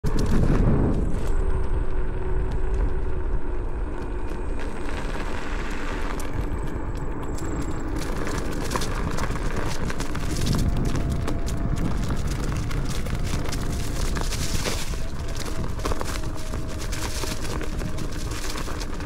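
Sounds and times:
vehicle rumble on dirt trail: 0.0s - 19.0s.

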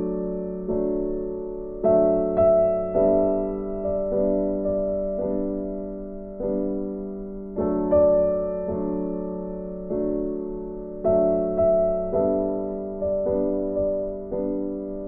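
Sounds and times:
slow keyboard chords: 0.0s - 15.0s.

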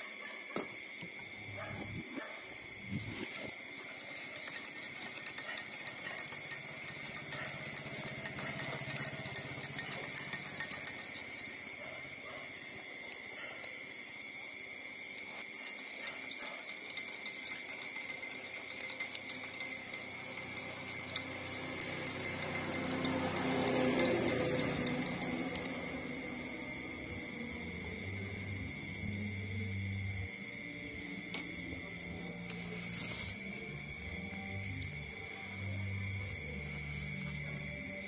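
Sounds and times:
high-pitched insect buzz: 13.6s - 38.0s.

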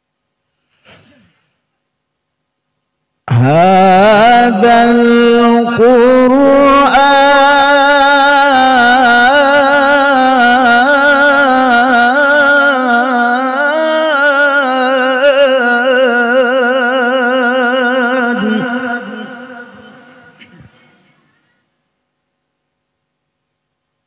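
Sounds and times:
man reciting melodically: 3.3s - 21.2s.

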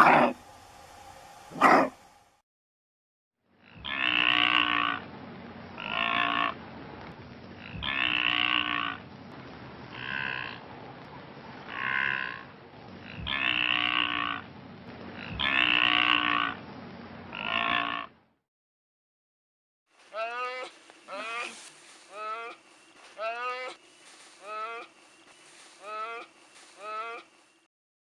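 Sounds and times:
wildebeest calling: 3.6s - 5.0s, 5.8s - 6.6s, 7.6s - 9.0s, 9.9s - 10.6s, 11.7s - 12.4s, 13.0s - 14.5s, 15.2s - 16.6s, 17.3s - 18.1s, 20.1s - 24.9s, 25.7s - 27.3s
steady background noise: 20.0s - 27.7s.

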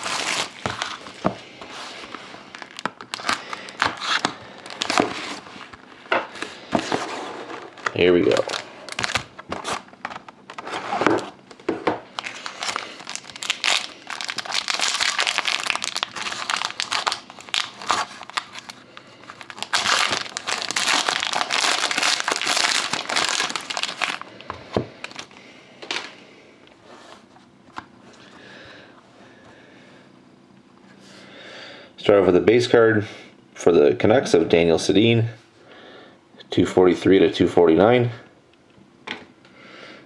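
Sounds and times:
foil wrapper tearing and crinkling: 0.0s - 1.2s, 2.0s - 5.7s, 7.6s - 10.6s, 12.1s - 24.3s, 25.0s - 25.3s.

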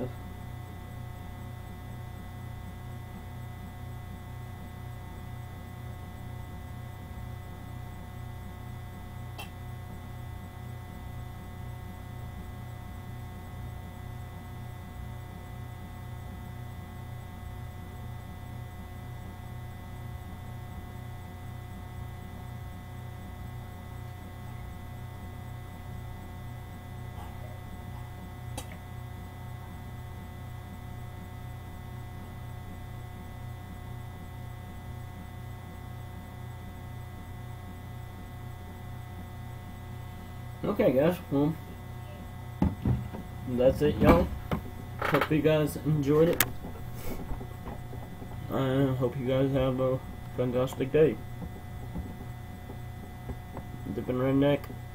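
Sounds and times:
electrical mains hum: 0.0s - 54.9s.

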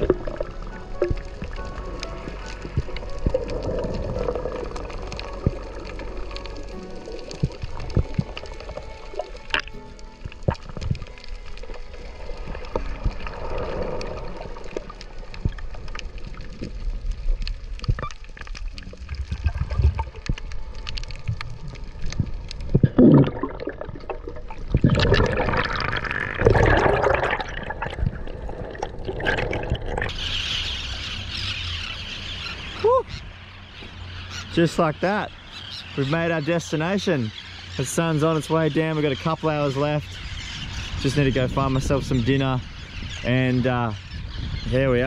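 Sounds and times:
underwater gurgling and bubbling: 0.0s - 30.9s
small clicks and pops: 12.6s - 23.2s.

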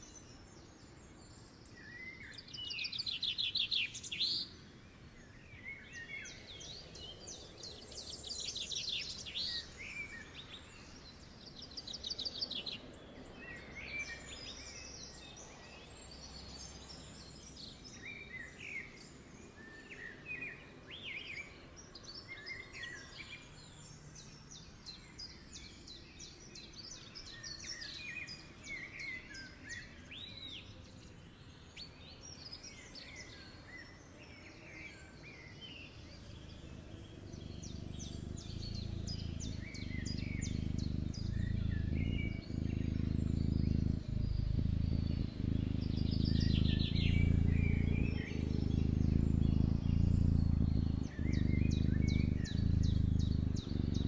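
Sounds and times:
small birds chirping: 0.0s - 54.0s
low steady hum: 36.2s - 54.0s.

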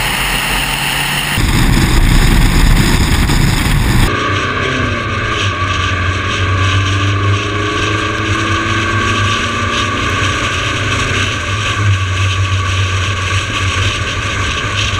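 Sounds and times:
car engine and tyre noise: 0.0s - 14.9s
wind on microphone: 1.4s - 4.1s.

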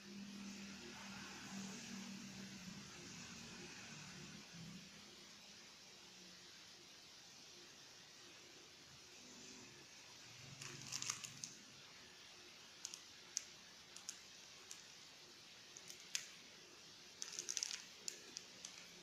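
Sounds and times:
faint steady hiss: 0.0s - 19.0s
plastic packet crinkling: 10.6s - 11.6s, 15.8s - 16.3s, 17.2s - 19.0s.

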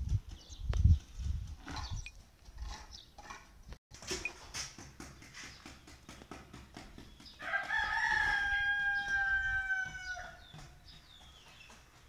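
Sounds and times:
rooster crowing: 7.4s - 10.4s.

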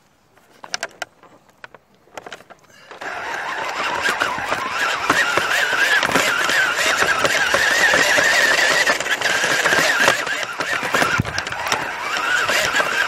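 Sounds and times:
toy truck motor whining: 2.7s - 13.0s.

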